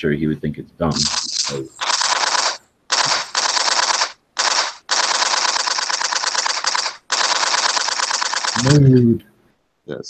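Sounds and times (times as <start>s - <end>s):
machine-gun fire bursts: 1.0s - 9.0s.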